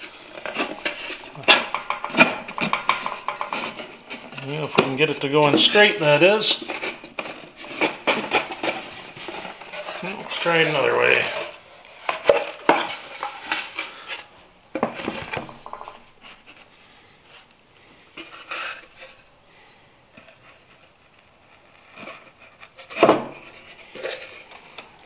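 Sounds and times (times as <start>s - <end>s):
wood knocking on wood and metal: 0.0s - 8.8s, 14.7s - 16.2s, 23.0s - 23.4s.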